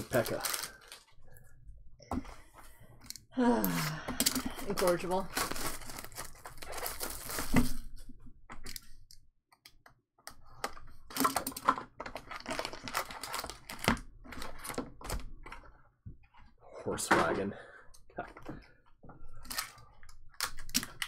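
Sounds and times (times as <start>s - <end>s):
foil card packs rustling: 0.0s - 1.1s, 4.3s - 7.9s, 11.1s - 15.1s
plastic shrink wrap crinkling: 0.0s - 1.1s, 4.2s - 8.0s, 11.1s - 14.8s.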